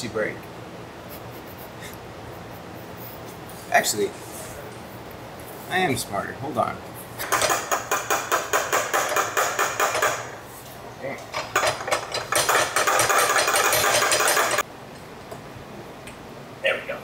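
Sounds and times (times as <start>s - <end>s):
ratcheting wrench clicking: 11.3s - 14.6s.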